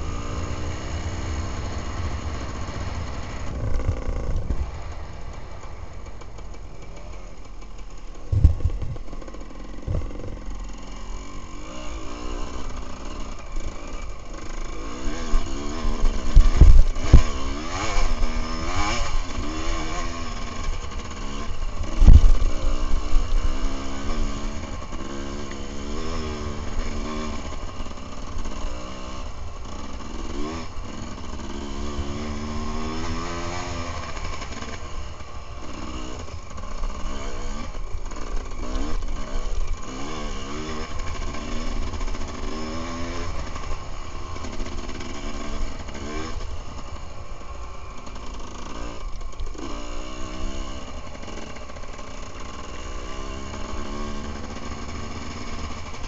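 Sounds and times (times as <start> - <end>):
motorcycle engine revving: 0.0 - 56.0
motorcycle thumping over bumps: 1.4 - 10.7, 16.1 - 18.1, 21.5 - 24.2.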